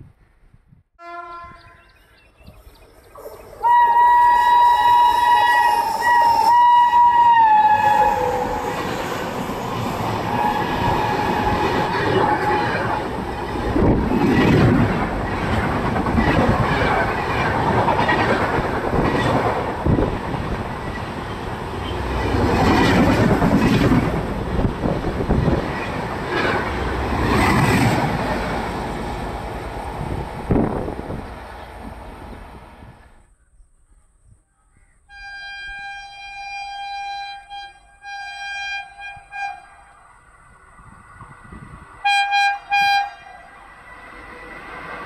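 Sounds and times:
train horn: 1.0s - 1.9s, 3.6s - 9.2s, 10.3s - 13.0s, 35.1s - 40.0s, 42.0s - 43.7s.

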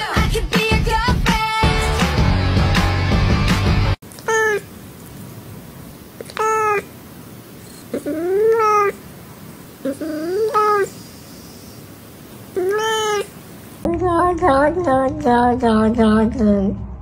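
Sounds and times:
faint steady hiss: 4.0s - 14.9s
cat meowing: 12.6s - 13.4s.

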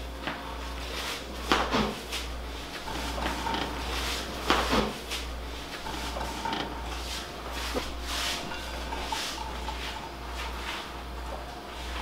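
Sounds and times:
steady low hum: 0.0s - 12.0s
cookware clattering: 8.3s - 10.0s.

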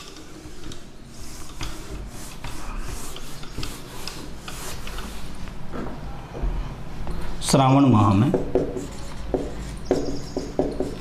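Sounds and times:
eraser swishing on whiteboard: 0.0s - 5.5s.

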